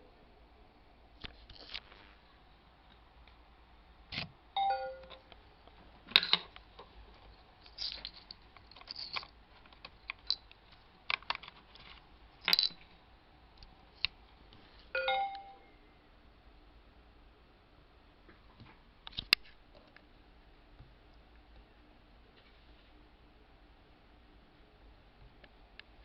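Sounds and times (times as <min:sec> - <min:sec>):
falling two-note chime: 0:04.6 - 0:05.2, 0:15.0 - 0:15.7
rising two-note chime: 0:04.6 - 0:05.2, 0:15.0 - 0:15.7.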